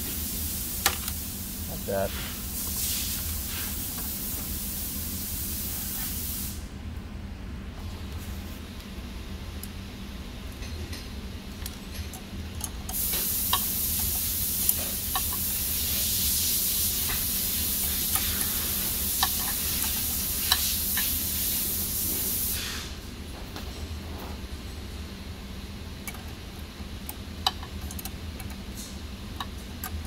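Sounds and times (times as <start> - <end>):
steady high hiss: 0.0 - 6.7, 12.9 - 23.1.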